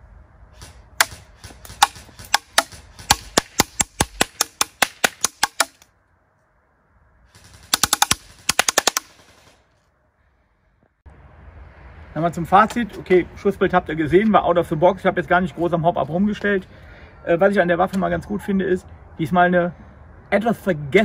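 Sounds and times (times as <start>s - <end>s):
airsoft gun firing: 0.6s - 5.8s, 7.3s - 9.6s.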